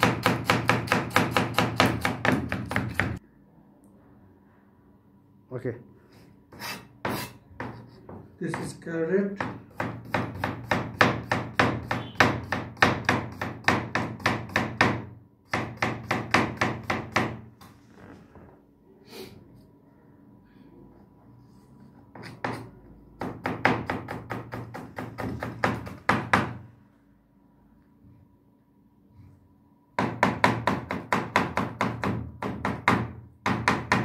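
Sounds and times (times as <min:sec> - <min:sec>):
knife chopping on cutting board: 0:00.0 - 0:03.2, 0:06.6 - 0:08.8, 0:09.4 - 0:17.4, 0:22.1 - 0:26.6.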